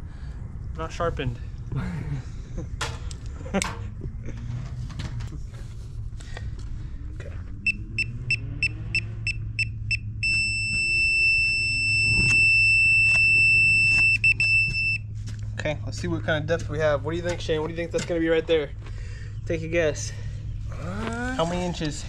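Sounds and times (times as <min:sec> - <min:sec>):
high-pitched beeping: 0:07.6 - 0:15.0
steady electronic tone: 0:07.6 - 0:15.0.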